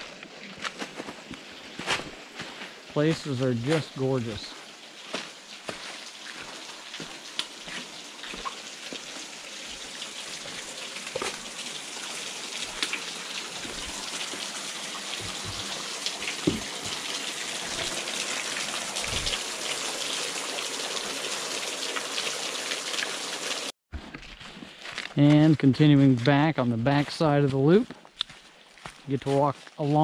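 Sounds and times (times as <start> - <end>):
waterfall splashing onto rocks: 3.0 - 23.7
soft knocks: 16.4 - 16.8.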